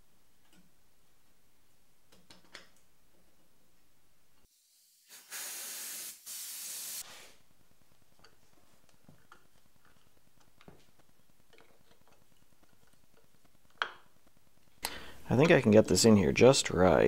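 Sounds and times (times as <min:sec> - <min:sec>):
spray nozzle hissing: 0:05.1 - 0:07.4.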